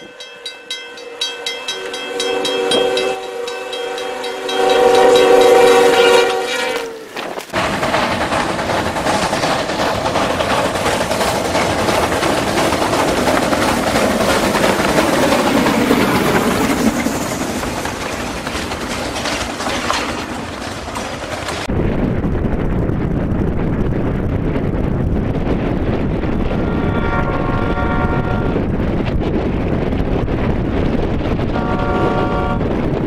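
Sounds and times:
wheels on rail: 0:00.0 - 0:21.7
steam locomotive passing: 0:00.0 - 0:22.6, 0:24.5 - 0:33.0
snowplow train deep rumble: 0:00.0 - 0:33.0.

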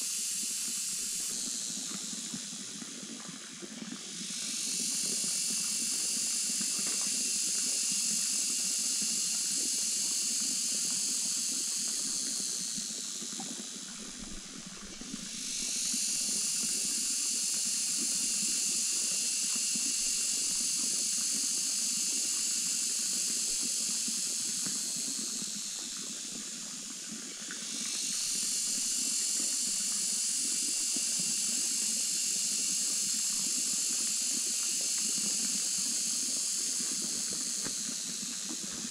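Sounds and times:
cicadas chorus: 0:00.0 - 0:38.9.

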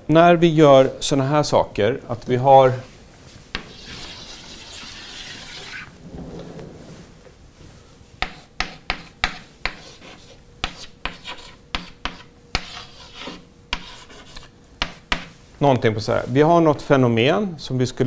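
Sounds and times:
chalk scratching on blackboard: 0:03.6 - 0:05.9, 0:08.2 - 0:15.4
chalk taps: 0:08.2 - 0:15.4.

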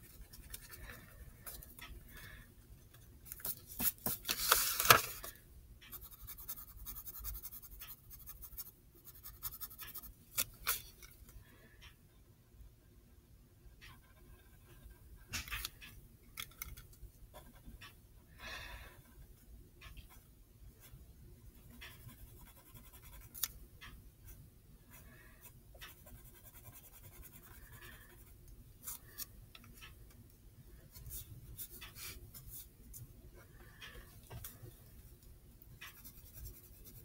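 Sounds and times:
pencil scratching on paper: 0:05.9 - 0:10.1, 0:21.6 - 0:23.5, 0:24.9 - 0:28.4, 0:35.8 - 0:37.0.

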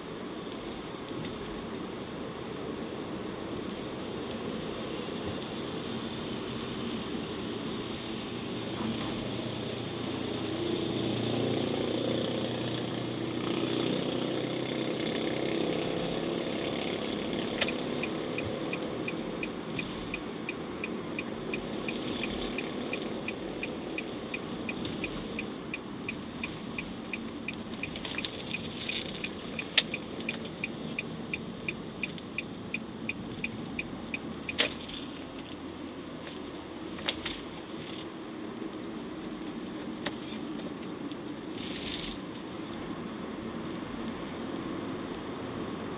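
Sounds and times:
car road and engine hum: 0:00.0 - 0:45.9
turn signal ticking: 0:14.9 - 0:37.4.

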